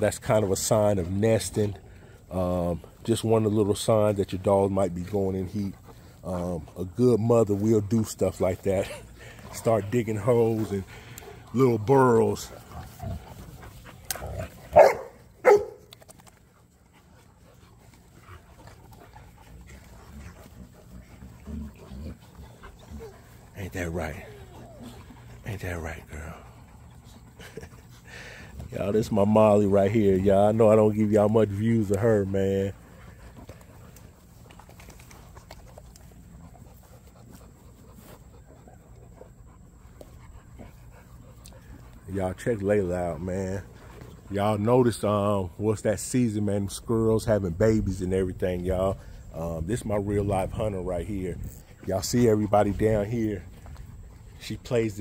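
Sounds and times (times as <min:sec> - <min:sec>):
dog panting: 0:00.0 - 0:55.0
paws scraping dry dirt: 0:00.0 - 0:55.0
rustling: 0:00.5 - 0:42.5
dog barks: 0:14.7 - 0:15.9.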